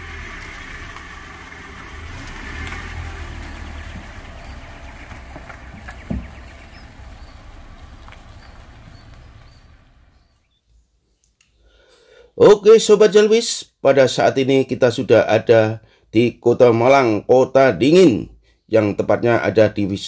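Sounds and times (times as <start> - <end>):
motor vehicle rumble: 0.0 - 10.5.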